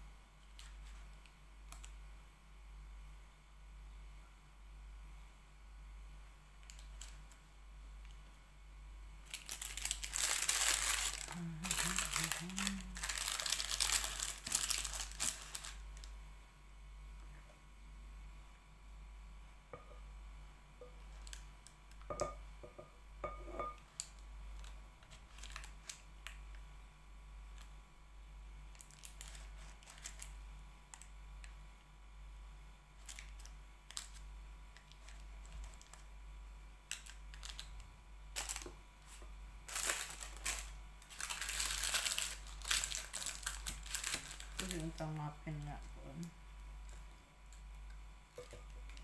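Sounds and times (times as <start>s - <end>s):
paper muffin liner crinkling: 9.3s - 16.1s, 24.0s - 26.0s, 28.8s - 30.4s, 36.9s - 45.2s
measuring cup tapping bowl: 22.1s - 23.8s, 48.4s - 48.7s.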